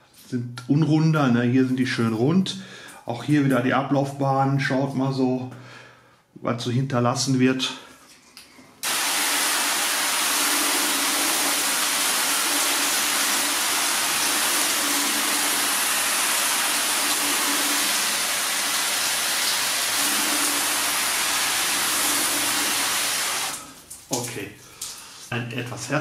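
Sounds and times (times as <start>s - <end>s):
hose nozzle spraying mist: 8.8s - 23.9s
water showering on car bonnet: 8.8s - 25.3s.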